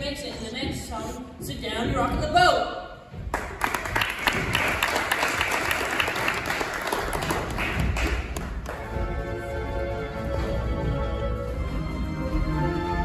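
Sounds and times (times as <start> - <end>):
audience applauding: 3.3 - 8.9.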